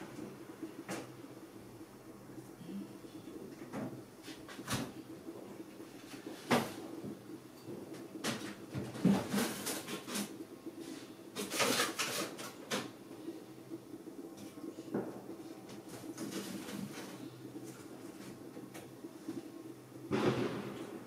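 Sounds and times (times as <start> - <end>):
faint steady hum: 0.0 - 21.0.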